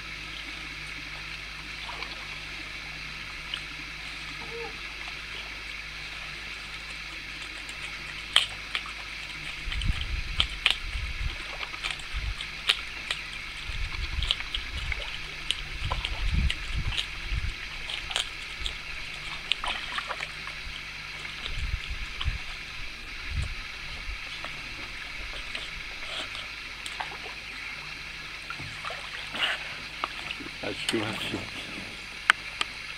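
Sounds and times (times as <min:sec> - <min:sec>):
lapping water: 0:00.0 - 0:32.9
low rumbling: 0:00.0 - 0:32.9
otter crunching fish bones: 0:11.6 - 0:20.5.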